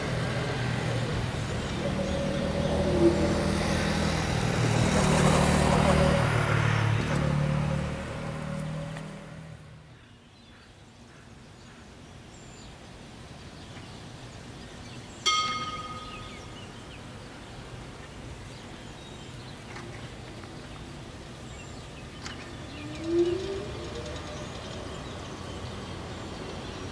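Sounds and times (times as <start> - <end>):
tram motors whining: 0.0 - 9.7, 22.3 - 26.6
road vehicle passing: 0.0 - 10.0, 22.1 - 26.9
open-air ambience: 0.0 - 26.9
tram bell ding: 15.3 - 16.8.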